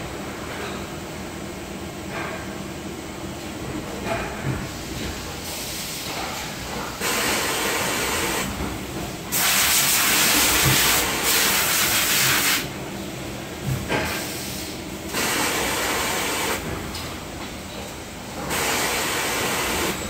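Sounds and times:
factory machinery hum: 0.0 - 20.0
compressed air hissing: 9.3 - 12.7, 14.1 - 16.6.

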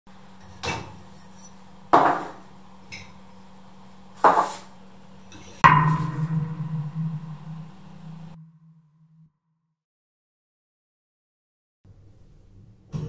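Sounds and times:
faint steady hum: 4.8 - 8.5
low pulsing drone: 5.6 - 9.3.

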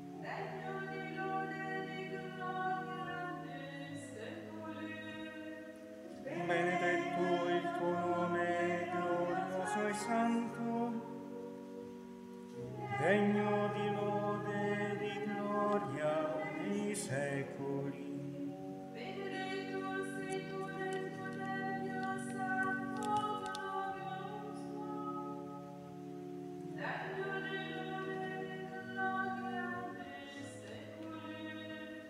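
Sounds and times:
choir singing a chant: 6.2 - 11.1, 12.8 - 18.3.

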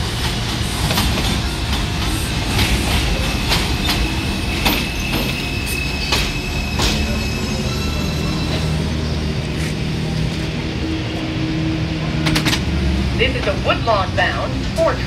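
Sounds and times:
train rumble: 0.0 - 15.0
train wheels clicking over rail joints: 0.2 - 7.2, 12.2 - 12.8
high brake whine: 3.0 - 13.0.

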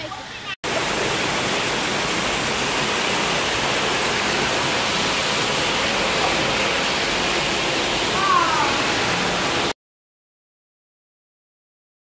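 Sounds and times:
waterfall rushing: 0.6 - 9.8.

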